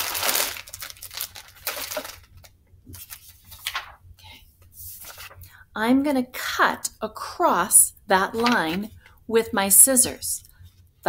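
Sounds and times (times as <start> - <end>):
plastic bag crinkling: 0.0 - 4.0.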